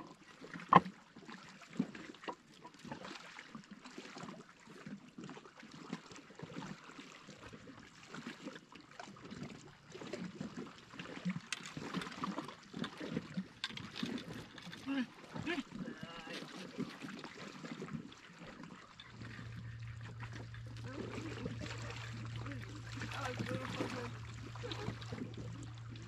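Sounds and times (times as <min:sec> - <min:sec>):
waves lapping on rocky shore: 0:09.9 - 0:26.0.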